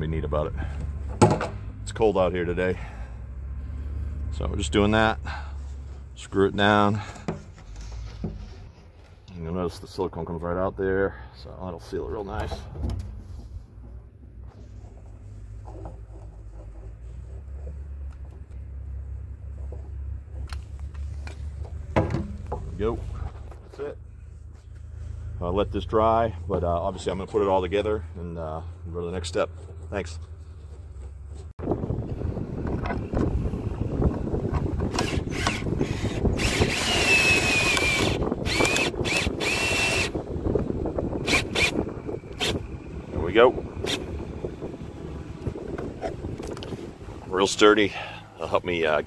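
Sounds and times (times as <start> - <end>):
steady low rumble: 0.0 - 49.0
power drill motor whine: 34.9 - 40.2, 41.2 - 42.6.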